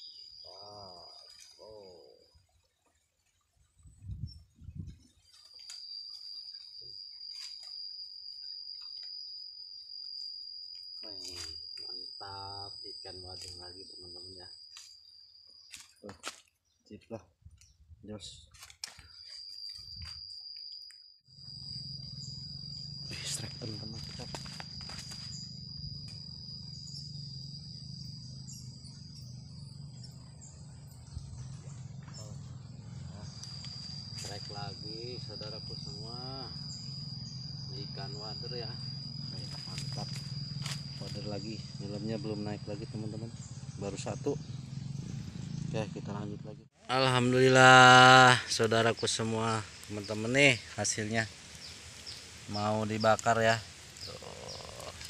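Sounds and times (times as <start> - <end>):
high-pitched insect drone: 0.0 - 2.5, 3.8 - 16.4, 18.1 - 55.0
low steady rumble: 25.3 - 34.2.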